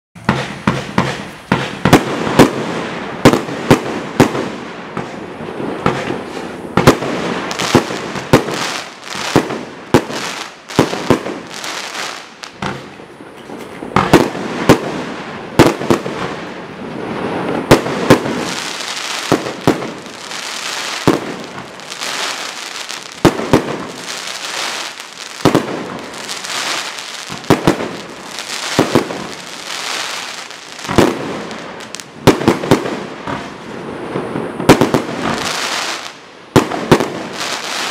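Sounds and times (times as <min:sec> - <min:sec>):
fireworks shots: 0:00.2 - 0:13.0, 0:13.7 - 0:37.9
crackling hiss of bursting stars: 0:16.8 - 0:32.2, 0:37.3 - 0:37.9.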